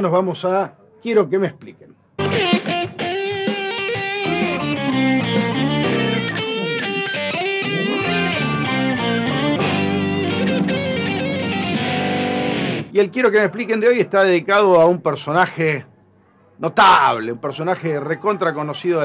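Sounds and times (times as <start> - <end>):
electric guitar rock jingle: 2.2 - 13.0.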